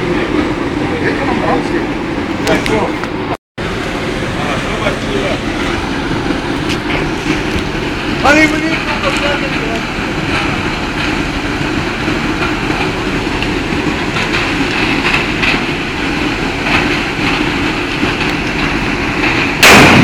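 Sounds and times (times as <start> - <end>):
steady noisy rumble: 0.0 - 20.0
loud bomb bang: 19.6 - 20.0.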